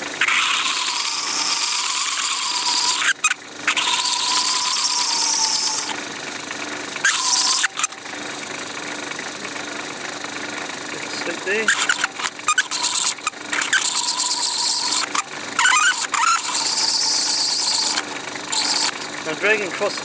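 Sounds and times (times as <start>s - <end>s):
knife screeching on spinning plastic: 0.0s - 6.0s, 7.0s - 8.2s, 11.4s - 20.0s
lathe running: 0.0s - 20.0s.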